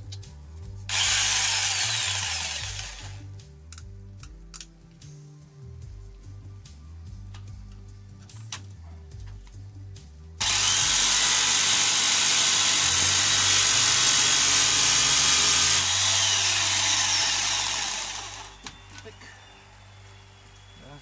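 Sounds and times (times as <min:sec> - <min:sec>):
jigsaw cutting sheet metal: 0:00.9 - 0:03.2, 0:10.4 - 0:19.1.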